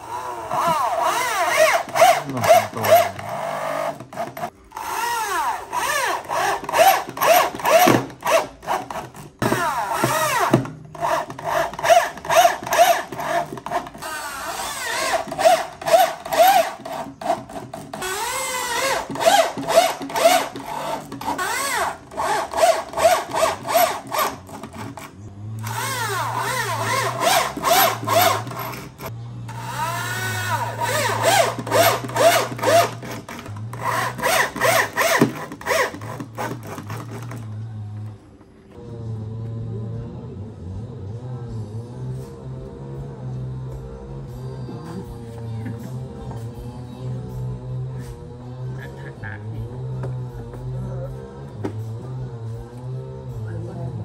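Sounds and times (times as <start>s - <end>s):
electric drill driving screws into wood: 0.0s - 37.5s.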